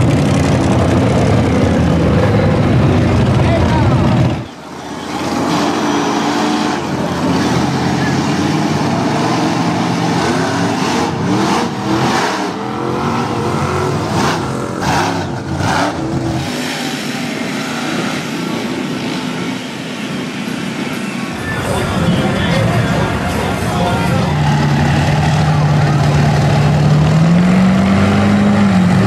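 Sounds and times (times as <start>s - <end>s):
tires churning through mud: 0.0s - 29.0s
truck engine revving hard: 0.0s - 29.0s.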